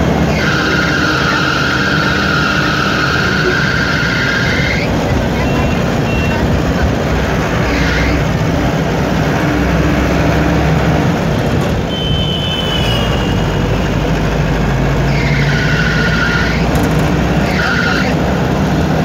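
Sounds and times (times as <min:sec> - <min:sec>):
road and wind noise: 0:00.0 - 0:19.0
vehicle engine hum: 0:00.0 - 0:19.0.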